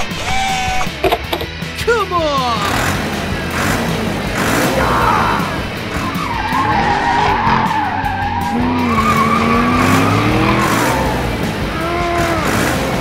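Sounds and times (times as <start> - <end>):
background music: 0.0 - 13.0
wavering squeal: 6.0 - 11.2.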